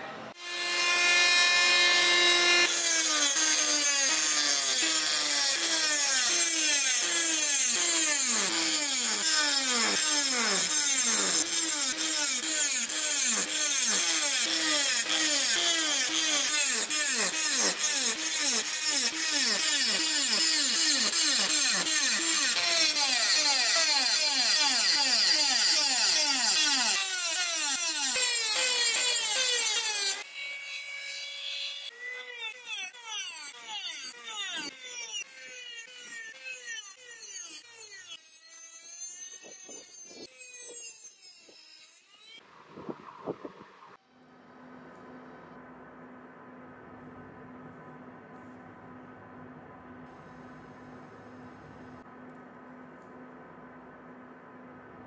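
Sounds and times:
rotary tool grinding metal: 0.4 - 42.4.

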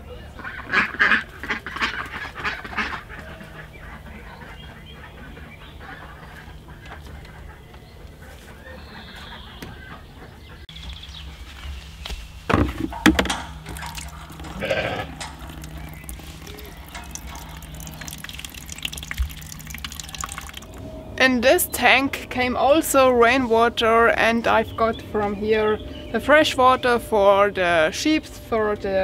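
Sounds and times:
ducks quacking: 0.1 - 10.6, 13.5 - 20.7.

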